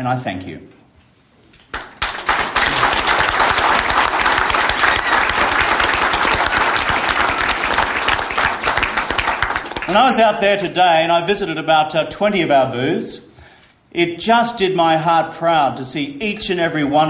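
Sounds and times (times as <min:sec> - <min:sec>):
people applauding: 0:01.6 - 0:10.2.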